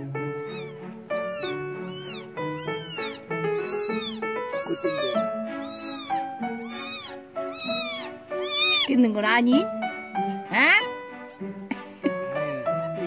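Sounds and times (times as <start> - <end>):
background music: 0.0 - 13.0
kitten mewing shrilly: 0.4 - 8.9.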